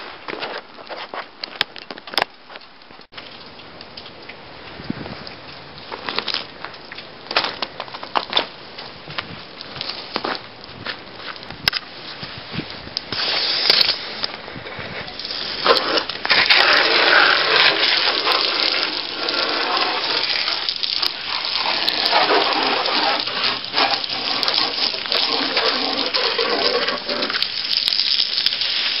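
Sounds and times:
water jetting from hose nozzle: 0:13.0 - 0:14.3, 0:15.0 - 0:29.0.

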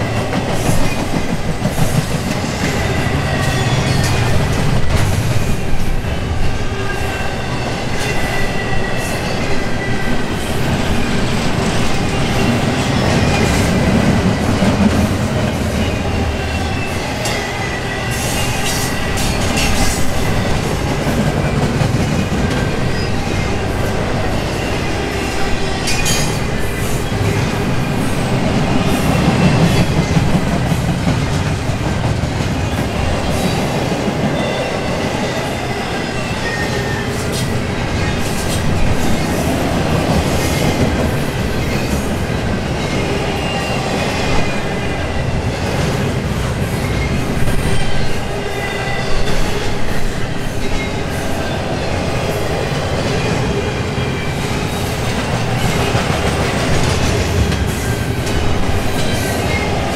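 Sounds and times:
rumble of train wheels on rail: 0:00.0 - 0:59.9.

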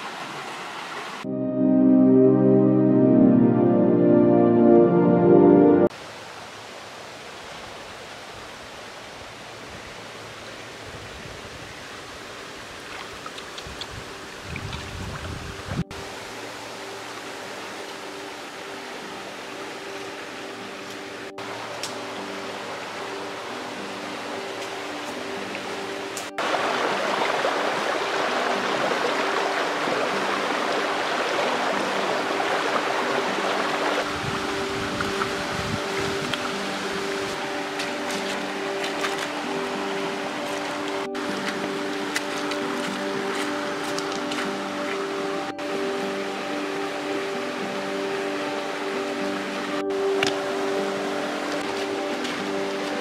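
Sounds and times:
river water rushing: 0:00.0 - 0:01.3, 0:02.8 - 0:53.0
person wading through water: 0:26.4 - 0:45.5, 0:49.0 - 0:53.0.

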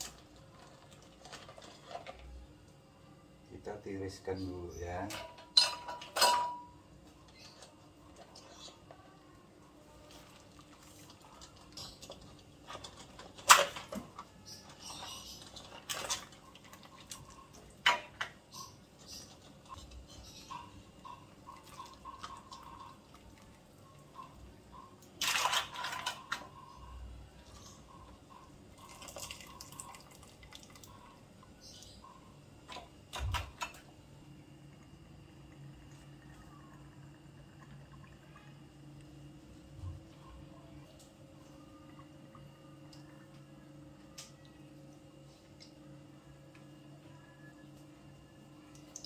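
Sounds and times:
water dripping into a pot: 0:27.5 - 0:32.0, 0:41.0 - 0:44.6, 0:48.7 - 0:49.0.

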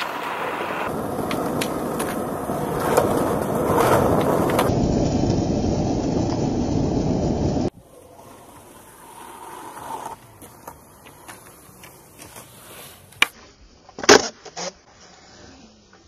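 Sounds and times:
skateboard clattering on concrete: 0:00.0 - 0:04.7
skateboard wheels rolling on concrete: 0:00.0 - 0:16.0.

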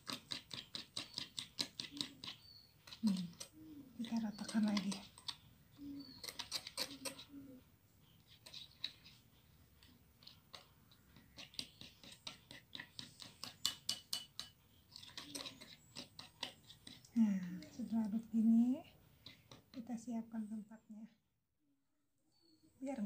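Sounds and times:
fork clinking against glass bowl: 0:11.4 - 0:17.0.

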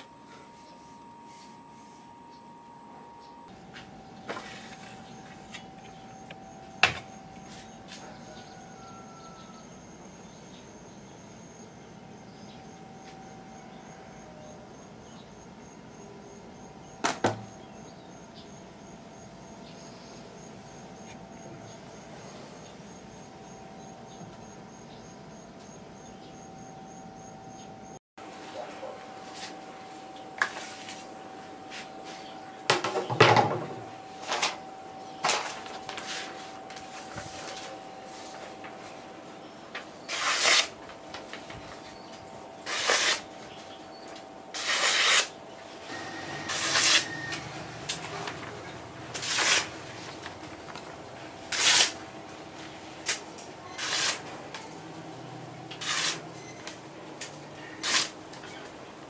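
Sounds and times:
blade scraping from scabbard: 0:40.1 - 0:40.7, 0:42.6 - 0:43.2, 0:44.6 - 0:45.3, 0:46.4 - 0:47.4, 0:49.2 - 0:49.7, 0:51.5 - 0:52.0, 0:53.7 - 0:54.2, 0:55.8 - 0:56.2, 0:57.8 - 0:58.2
blade slicing paper: 0:40.1 - 0:40.8, 0:42.6 - 0:43.3, 0:44.6 - 0:45.4, 0:46.4 - 0:47.4, 0:49.1 - 0:49.7, 0:51.5 - 0:52.0, 0:53.8 - 0:54.2, 0:55.8 - 0:56.2, 0:57.8 - 0:58.2.

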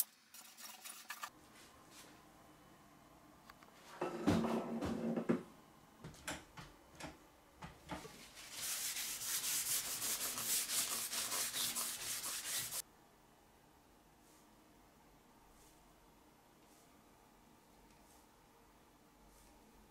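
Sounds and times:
scratchy rubbing on metal: 0:08.4 - 0:12.8.

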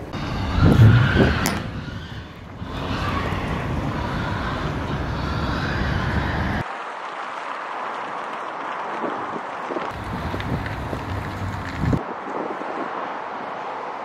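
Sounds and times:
road traffic: 0:00.0 - 0:14.0
wind: 0:00.0 - 0:14.0
pigs squealing: 0:00.2 - 0:06.6.

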